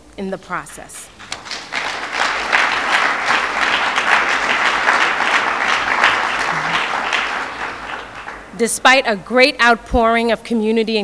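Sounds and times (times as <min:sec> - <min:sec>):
audience applauding: 0:01.2 - 0:08.6.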